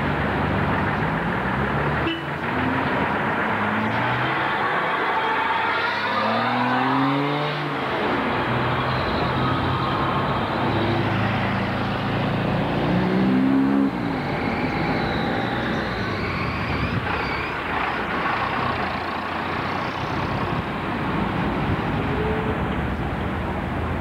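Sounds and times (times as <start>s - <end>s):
traffic rumble: 0.0s - 24.0s
vehicle engine revving: 5.6s - 9.6s, 10.4s - 20.6s.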